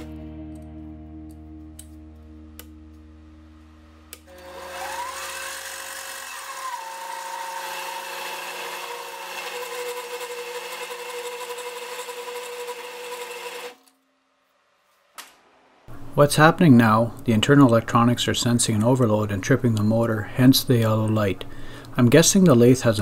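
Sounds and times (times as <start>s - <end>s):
lathe motor whine: 4.2s - 13.8s.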